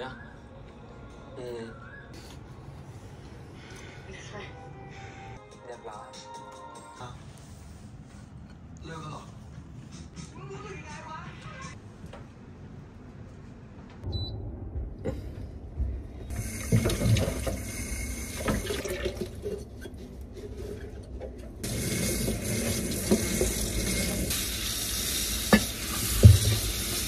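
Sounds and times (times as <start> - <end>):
tap running into a sink: 16.4 - 19.2, 21.7 - 24.2, 25.4 - 27.0
sponge washing glasses: 16.4 - 27.0.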